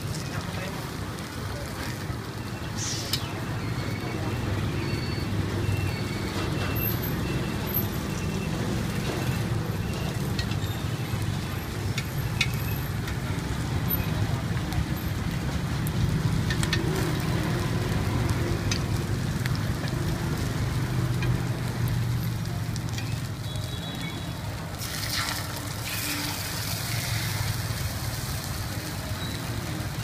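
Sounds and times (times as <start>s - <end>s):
batter sizzling in a pan: 6.9s - 30.0s.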